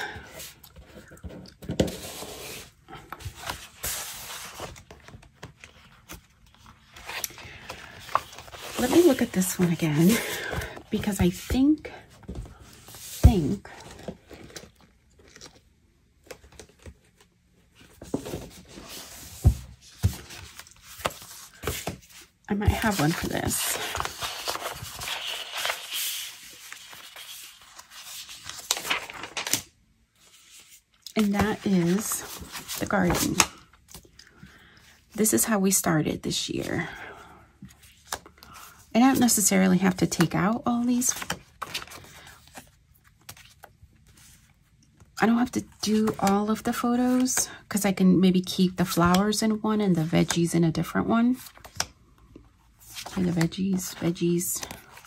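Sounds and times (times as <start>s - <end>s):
paper sheets rustling and sliding: 3.4s - 11.7s, 17.9s - 29.6s.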